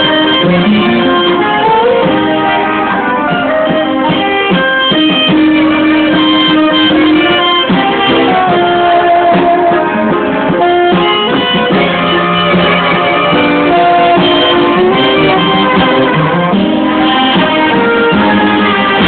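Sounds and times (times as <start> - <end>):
band playing music: 0.0 - 19.0.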